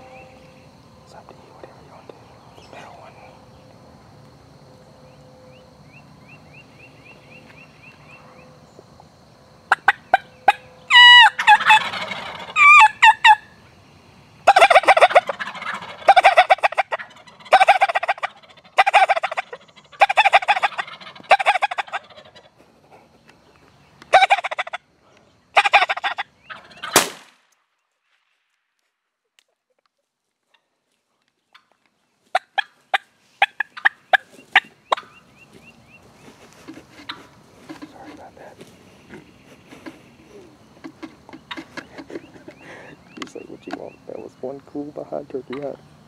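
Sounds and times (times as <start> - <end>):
turkeys gobbling: 9.7 - 13.6, 14.4 - 24.9, 25.5 - 27.1, 31.5 - 45.8.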